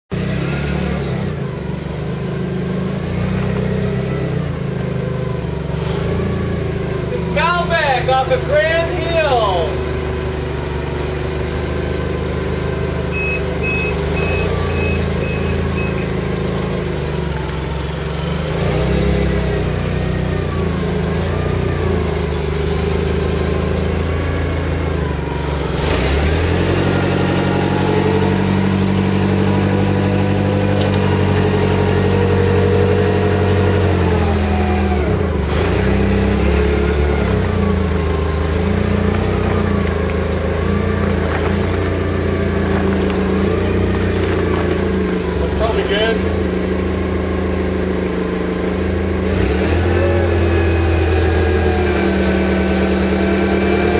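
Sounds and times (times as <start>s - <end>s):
forklift engine running: 0.1s - 53.9s
faint beeps: 13.1s - 16.2s.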